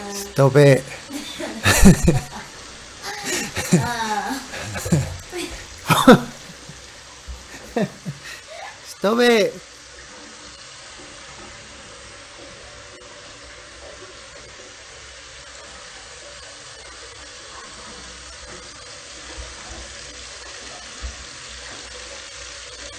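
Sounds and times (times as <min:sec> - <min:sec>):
tap water running into basin: 0:00.0 - 0:22.9.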